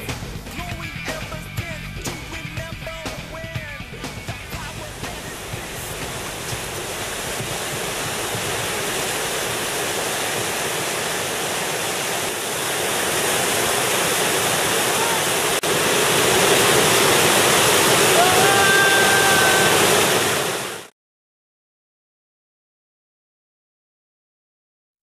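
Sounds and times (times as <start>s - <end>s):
river rapid rushing: 2.9s - 20.9s.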